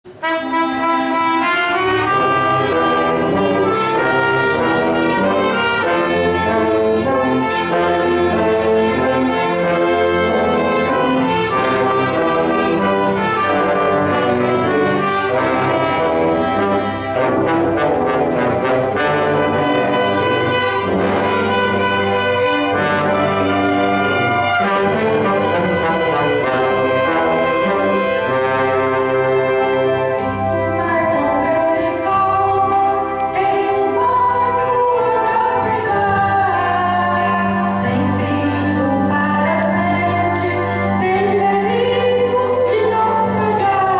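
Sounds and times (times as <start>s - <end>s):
orchestra playing a hymn: 0.0s - 43.9s.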